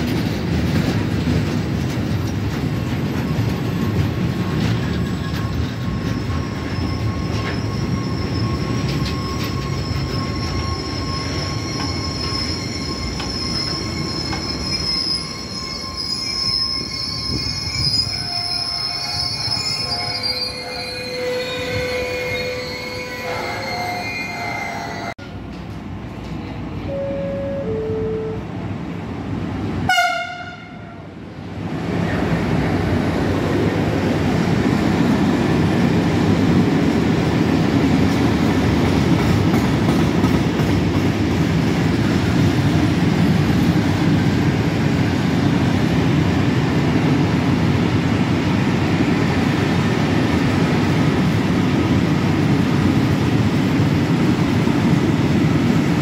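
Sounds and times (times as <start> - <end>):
brief lower horn tones: 26.9 - 28.5
train horn blast: 29.9 - 31.0.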